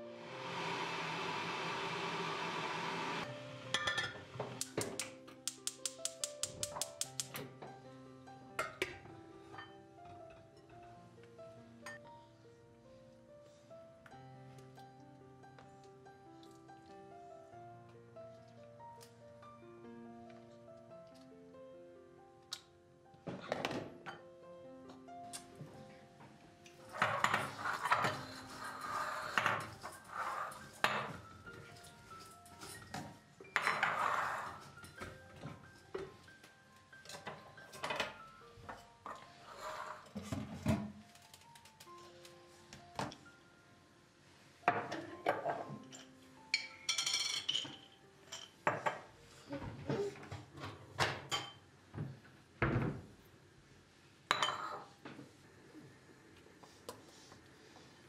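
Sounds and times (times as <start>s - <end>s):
kitchen utensils clattering: 26.9s - 36.2s, 44.7s - 49.1s.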